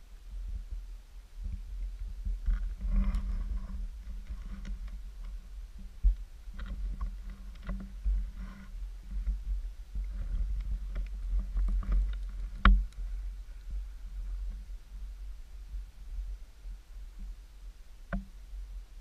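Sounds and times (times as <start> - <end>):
low rumbling noise: 0.0 - 19.0
rustles: 0.0 - 19.0
small knocks: 5.8 - 8.6, 10.1 - 13.0.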